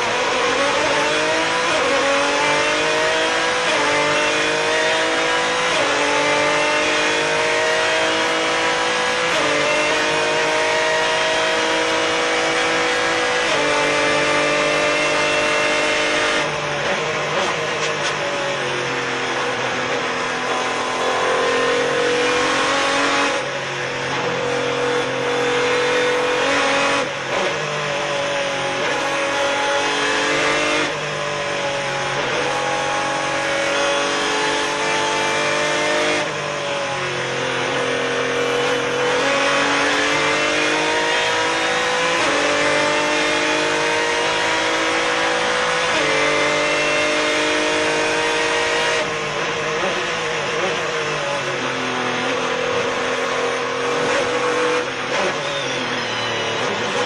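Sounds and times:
race car engine at full throttle: 0:00.0 - 0:57.0.

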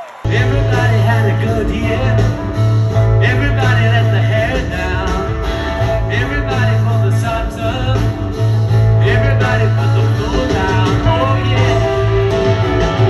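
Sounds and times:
man singing: 0:00.2 - 0:13.0
deep bass line: 0:00.3 - 0:13.0
electric guitars: 0:00.3 - 0:13.0.

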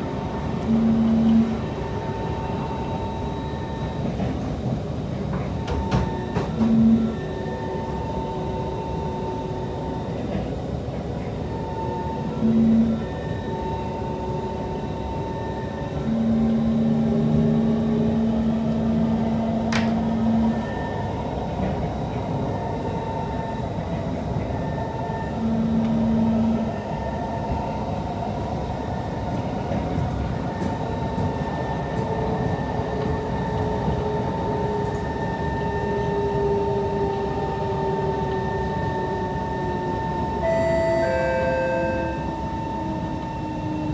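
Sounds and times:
high steady tones: 0:40.4 - 0:42.4.

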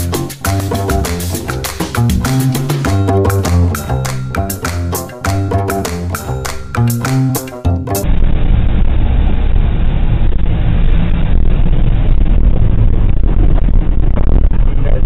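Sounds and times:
snatch of music: 0:00.0 - 0:08.0.

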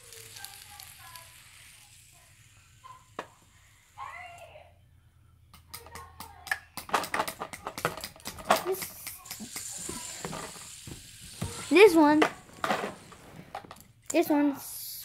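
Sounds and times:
fidget spinners clicking: 0:00.0 - 0:03.3.

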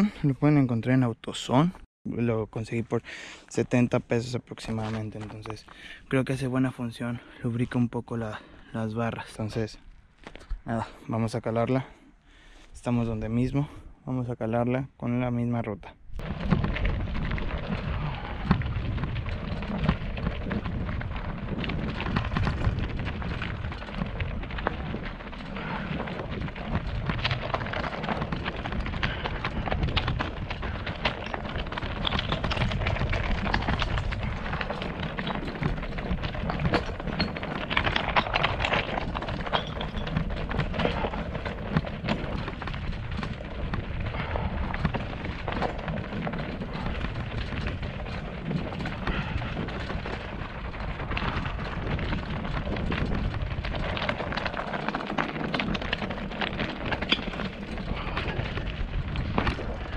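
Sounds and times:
tyres crunching over stones: 0:04.5 - 0:08.4, 0:09.1 - 0:11.0, 0:16.2 - 0:59.9
wind rumble on microphone: 0:16.1 - 0:59.9
bike clattering and rattling: 0:16.2 - 0:59.9.

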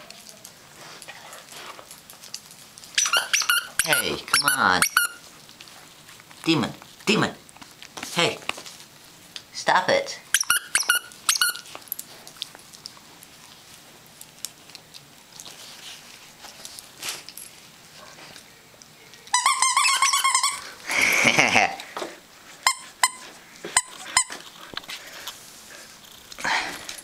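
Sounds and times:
squeaky toy squeaking: 0:03.0 - 0:05.2, 0:10.3 - 0:11.7, 0:19.3 - 0:20.6, 0:22.6 - 0:23.2, 0:23.8 - 0:24.4.

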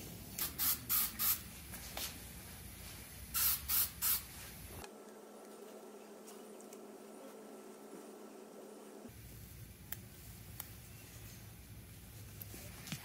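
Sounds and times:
aerosol can hissing spurts: 0:00.4 - 0:01.4, 0:03.4 - 0:04.3.

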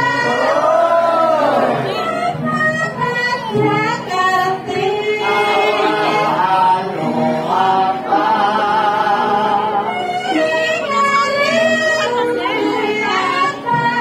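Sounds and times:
group of singers chanting: 0:00.0 - 0:02.0, 0:05.2 - 0:09.9.

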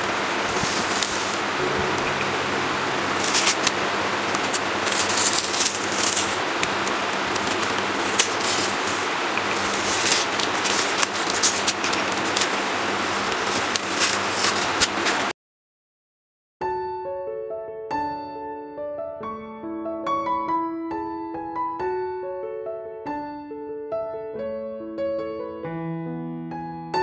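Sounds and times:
steady hiss: 0:00.0 - 0:15.3
low hum: 0:01.3 - 0:09.9
masking tape peeling off canvas: 0:04.4 - 0:12.6.

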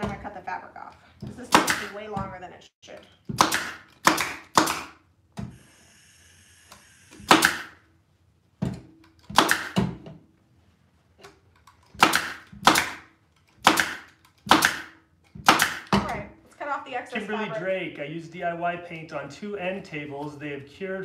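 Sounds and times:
pneumatic stapler shots: 0:03.3 - 0:05.6, 0:06.7 - 0:07.8, 0:09.2 - 0:10.0, 0:11.9 - 0:16.0.

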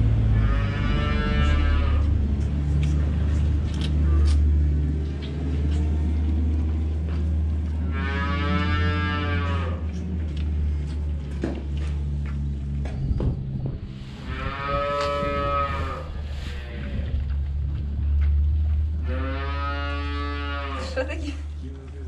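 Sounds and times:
cattle mooing: 0:00.0 - 0:02.2, 0:07.8 - 0:09.9, 0:14.2 - 0:17.2, 0:19.0 - 0:21.1
steady low hum: 0:00.0 - 0:19.2.

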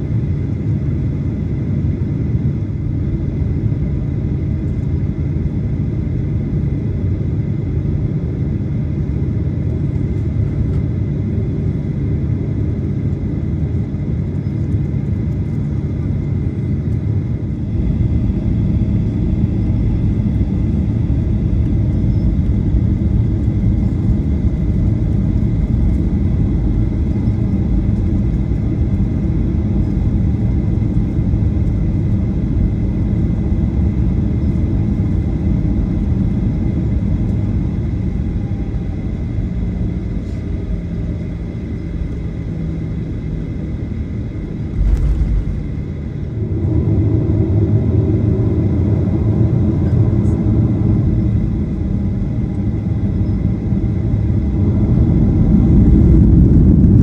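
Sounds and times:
aircraft engine rumble: 0:00.0 - 0:57.0
thin steady whine: 0:11.9 - 0:57.0.

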